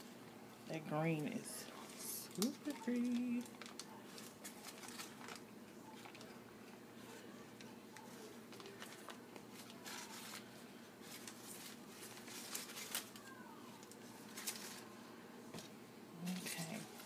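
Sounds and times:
liner sheet crinkling: 1.8s - 6.4s, 8.0s - 14.9s.

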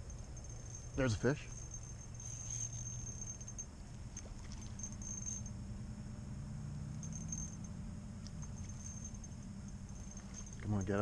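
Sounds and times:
insects trilling: 0.0s - 11.0s
low steady hum: 0.0s - 11.0s.

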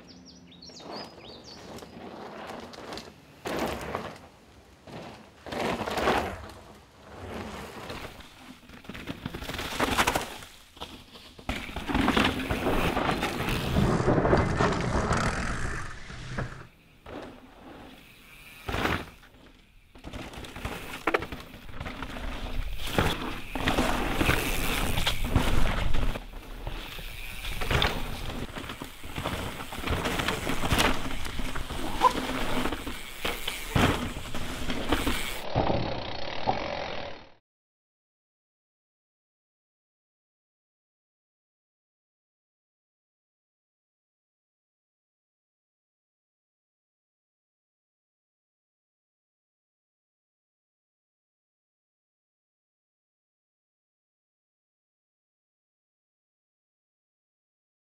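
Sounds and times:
bike tyres skidding on dirt: 0.2s - 37.2s
bikes clattering over rough ground: 0.6s - 37.2s.

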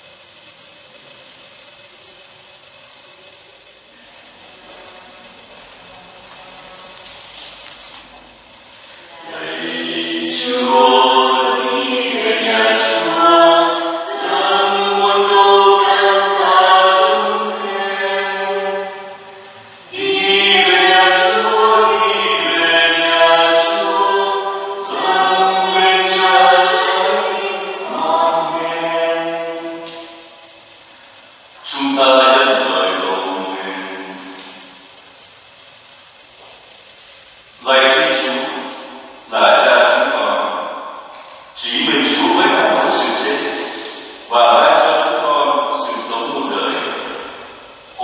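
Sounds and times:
choir singing unaccompanied: 9.0s - 30.8s, 31.6s - 34.7s, 37.6s - 48.0s.

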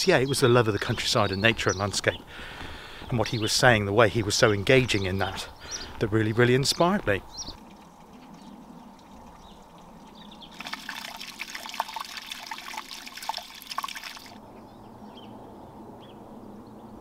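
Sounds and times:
trickle of running water: 8.7s - 14.4s.

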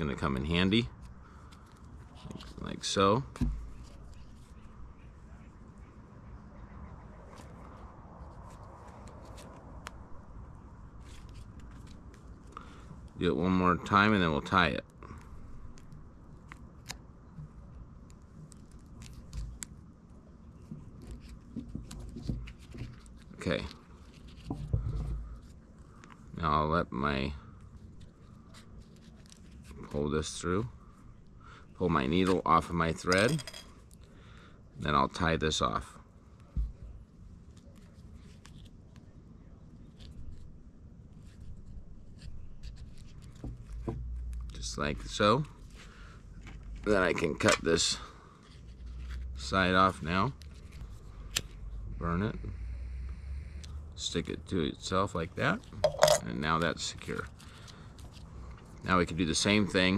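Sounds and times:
pine needles crackling and rustling: 8.3s - 10.0s.

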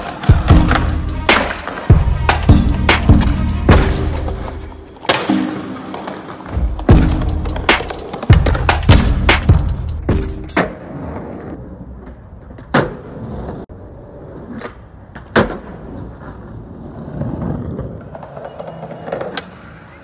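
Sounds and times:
skateboard clacks: 0.0s - 11.0s, 14.5s - 16.5s
skateboard wheels rolling on concrete: 0.0s - 20.0s.

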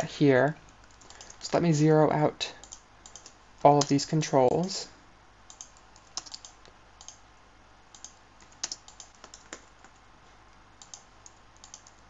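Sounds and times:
computer keyboard typing: 0.7s - 1.6s, 2.6s - 4.6s, 5.5s - 7.2s, 7.9s - 10.0s, 10.8s - 12.0s.

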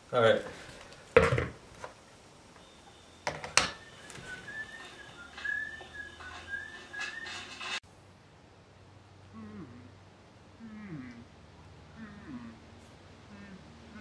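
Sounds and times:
person whistling a tune: 3.8s - 7.5s.

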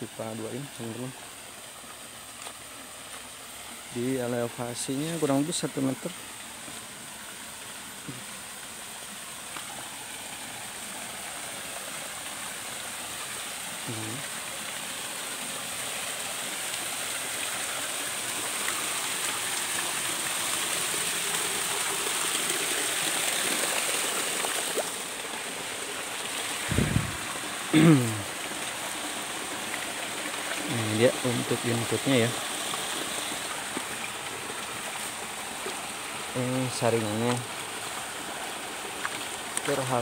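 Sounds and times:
water rushing over weir: 2.7s - 40.0s.

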